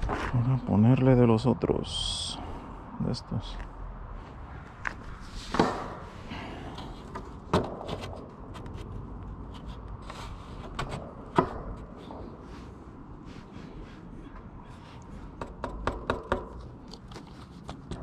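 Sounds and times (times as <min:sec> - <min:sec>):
sharp wooden knocks: 0:07.1 - 0:08.2, 0:15.4 - 0:16.7.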